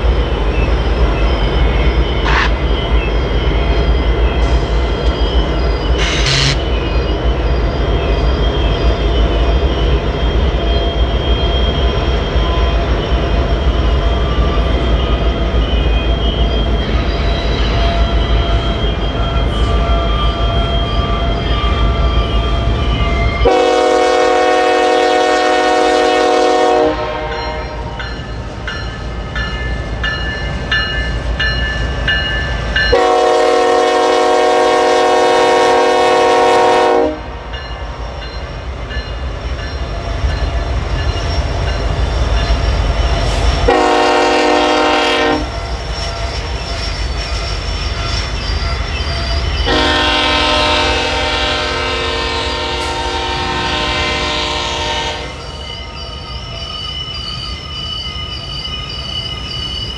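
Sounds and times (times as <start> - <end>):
low rumble of diesel locomotives: 0.0 - 59.9
locomotive air horn blasts: 2.2 - 2.5, 6.0 - 6.6, 23.4 - 27.9, 32.9 - 37.4, 43.7 - 45.5, 49.7 - 55.4.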